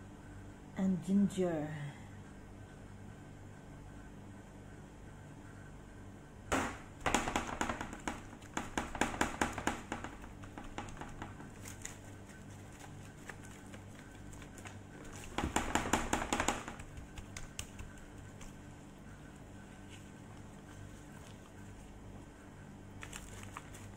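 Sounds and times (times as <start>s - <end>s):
gloved hand squishing raw chicken: 10.2s - 15.4s, 16.8s - 22.3s, 22.9s - 23.9s.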